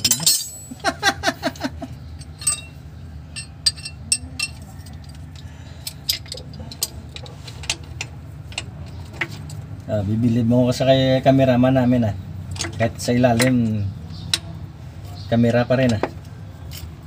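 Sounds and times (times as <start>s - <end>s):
metal hand tools clinking: 0.0s - 0.9s, 2.2s - 5.2s.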